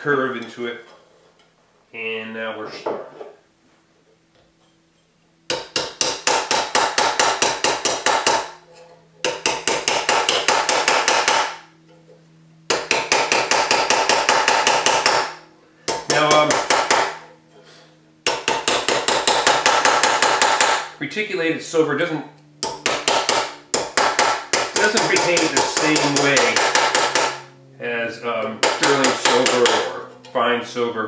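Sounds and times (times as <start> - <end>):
hammer striking metal: 5.5 - 8.6, 9.2 - 11.6, 12.7 - 17.3, 18.2 - 20.9, 22.6 - 27.5, 28.6 - 30.4.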